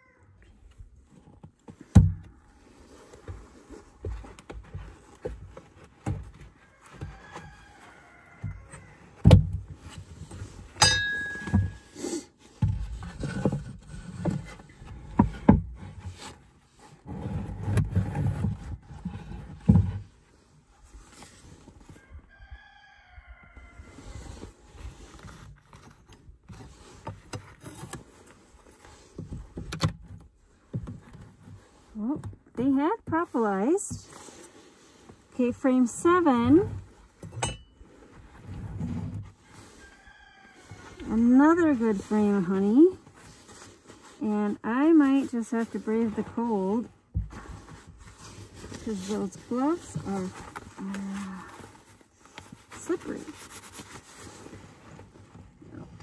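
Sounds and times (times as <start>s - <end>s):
metal tool scraping wood: 9.8s - 20.1s, 33.4s - 40.0s.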